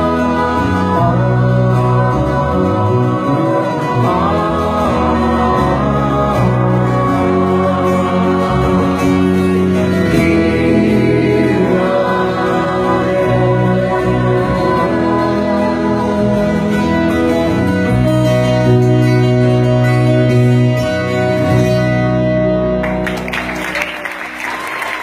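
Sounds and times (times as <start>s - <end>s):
voices singing in harmony: 0.0s - 18.7s
acoustic guitar: 0.0s - 25.0s.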